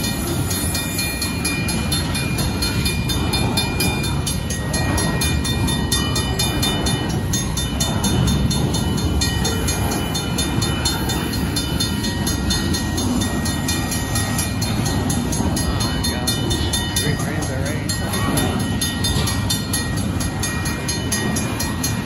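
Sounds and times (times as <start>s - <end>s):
crossing signal bell ringing: 0.0s - 22.0s
train wheels rumbling on rail: 0.0s - 22.0s.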